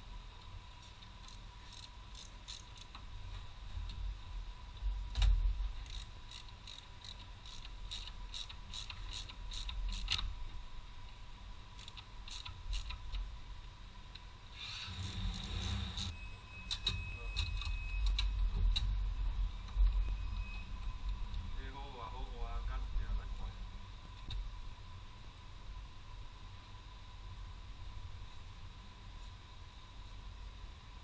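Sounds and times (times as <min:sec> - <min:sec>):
ratchet wrench clicking: 0:01.2 - 0:03.0, 0:05.8 - 0:10.2, 0:11.8 - 0:13.0.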